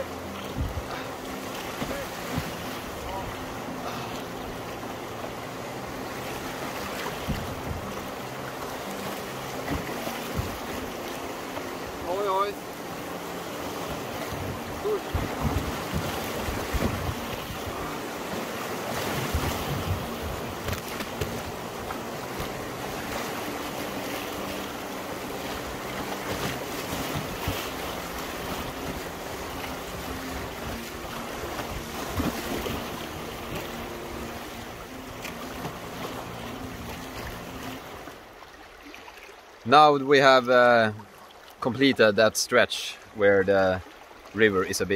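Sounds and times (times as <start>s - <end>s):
river rapids rushing: 0.0s - 40.6s
wind buffeting microphone: 14.3s - 17.9s, 19.2s - 20.8s.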